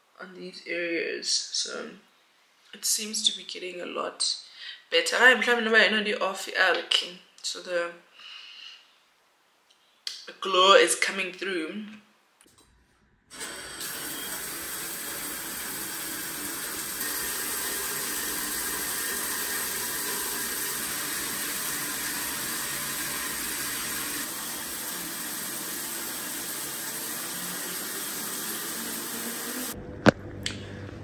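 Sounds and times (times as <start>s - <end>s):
shower water spraying on tiles: 13.3s - 29.8s.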